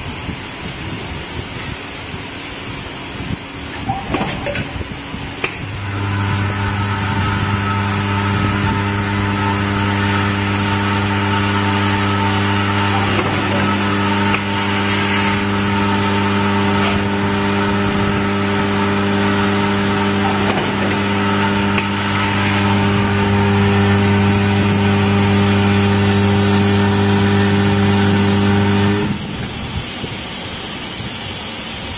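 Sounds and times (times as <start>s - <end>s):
vibratory feeder buzzing: 3.8s - 29.2s.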